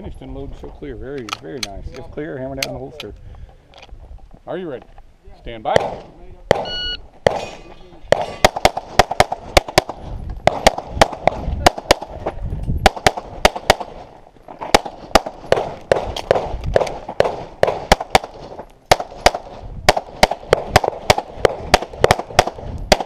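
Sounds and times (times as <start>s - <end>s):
pistol shots: 5.7s - 12.2s, 12.8s - 23.0s.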